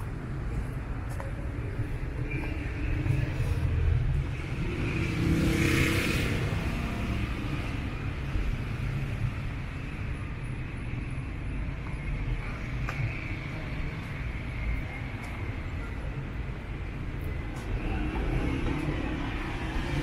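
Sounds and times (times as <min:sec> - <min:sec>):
traffic engines rumbling: 0:00.0 - 0:20.0.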